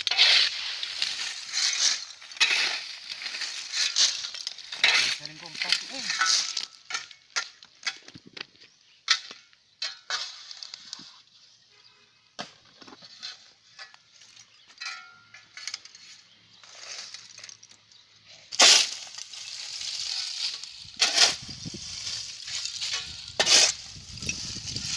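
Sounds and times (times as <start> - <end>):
charcoal clinking and crunching: 0.0 - 8.2, 13.2 - 24.9.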